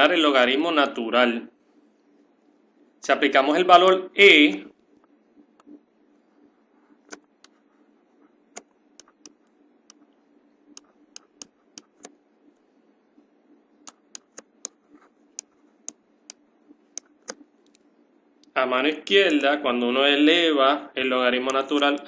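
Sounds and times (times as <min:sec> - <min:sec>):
faint steady hum: 0:00.0 - 0:22.0
stylus tapping on drawing tablet: 0:08.6 - 0:10.0, 0:10.8 - 0:12.2, 0:13.9 - 0:16.4.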